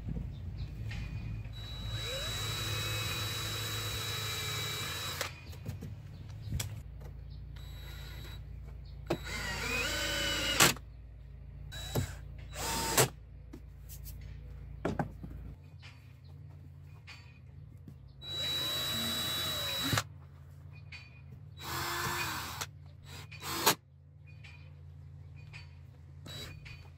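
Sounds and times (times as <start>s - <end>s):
cordless drill driving screws: 1.6s - 5.5s, 7.6s - 8.4s, 9.1s - 10.8s, 11.7s - 13.1s, 18.2s - 20.0s, 21.6s - 23.8s, 26.3s - 26.7s.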